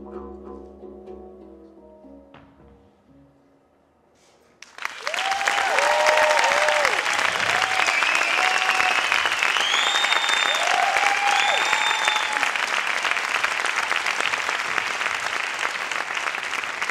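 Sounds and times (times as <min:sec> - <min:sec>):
audience applauding: 0:04.6 - 0:16.9
audience cheering whoops: 0:04.8 - 0:15.1.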